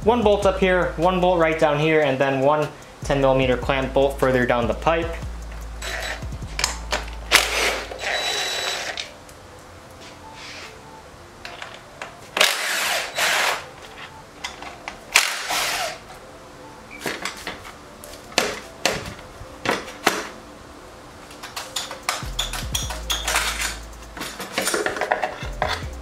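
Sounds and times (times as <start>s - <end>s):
cordless power driver whirring: 5.8s - 6.2s, 7.3s - 9.1s, 12.4s - 13.6s, 15.1s - 16.0s
metallic clanks and knocks: 21.4s - 26.0s.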